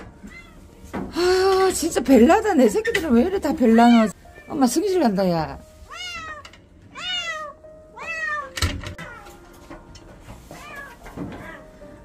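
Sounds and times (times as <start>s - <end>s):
cat meowing: 0.2s - 0.6s, 5.9s - 9.3s.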